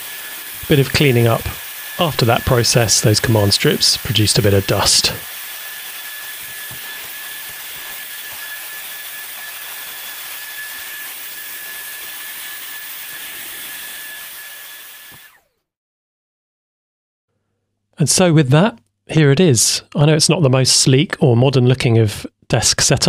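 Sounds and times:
handheld vacuum cleaner running: 0.0s - 15.6s.

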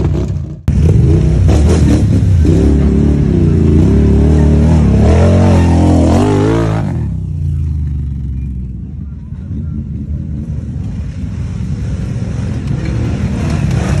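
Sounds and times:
atv engine revving: 0.0s - 8.6s, 11.8s - 14.0s.

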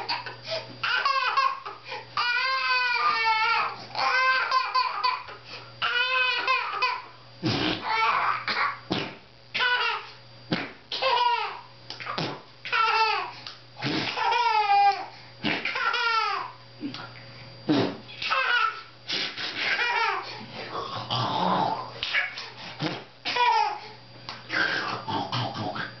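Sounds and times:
baby squealing and laughing: 0.0s - 5.2s, 7.8s - 8.6s, 12.7s - 13.3s, 18.2s - 18.8s, 19.6s - 20.3s.

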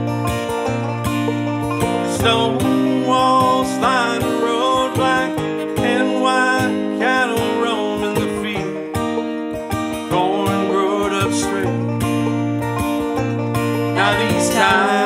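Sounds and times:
acoustic guitar strumming: 0.0s - 15.0s
banjo picking: 0.0s - 15.0s
man singing: 2.0s - 8.9s, 10.1s - 11.8s, 13.9s - 15.0s.

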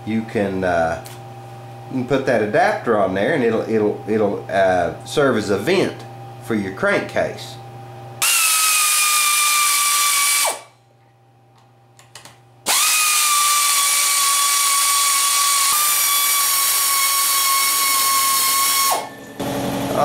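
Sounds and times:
power ratchet motor whine: 8.2s - 10.8s, 12.6s - 20.0s.

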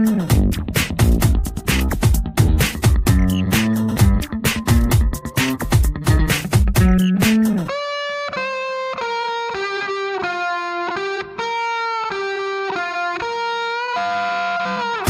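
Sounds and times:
drums: 0.0s - 7.7s
distorted electric guitar: 0.0s - 15.0s.

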